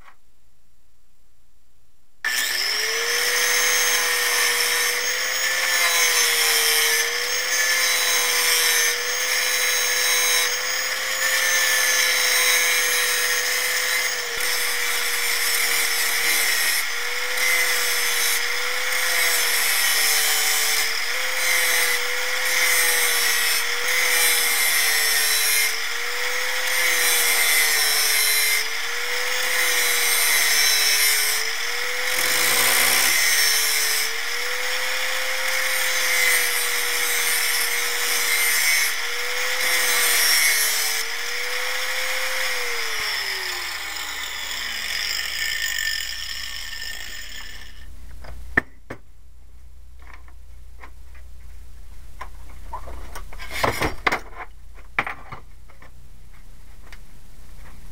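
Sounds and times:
grinder cutting steel: 2.3 - 47.9.

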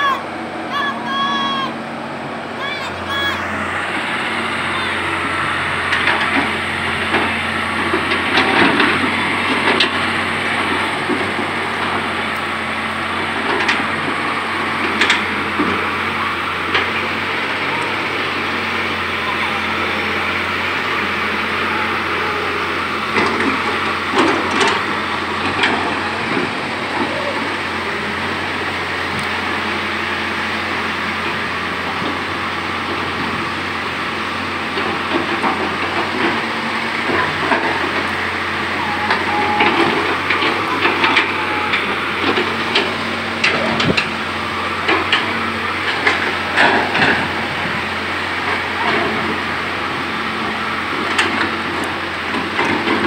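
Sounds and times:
excavator diesel engine running: 0.0 - 53.0
knocks and clanks: 5.8 - 12.5, 22.8 - 27.3, 34.7 - 49.7, 50.4 - 53.0.

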